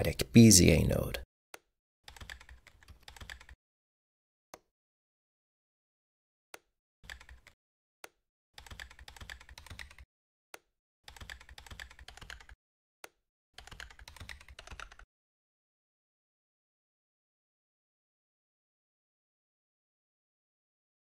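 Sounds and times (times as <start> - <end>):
computer keyboard typing: 2.1 - 3.6, 7.0 - 7.6, 8.6 - 10.1, 11.1 - 12.6, 13.6 - 15.1.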